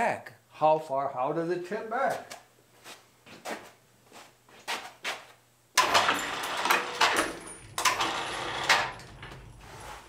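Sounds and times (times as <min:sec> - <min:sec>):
metal clanking and scraping: 0:05.8 - 0:10.0.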